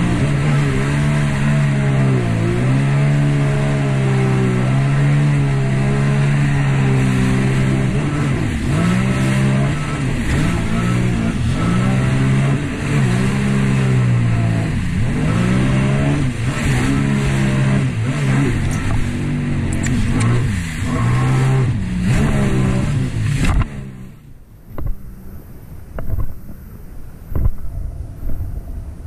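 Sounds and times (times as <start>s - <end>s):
jet ski engine revving: 0.0s - 26.6s
rush of wind and spray: 0.0s - 29.0s.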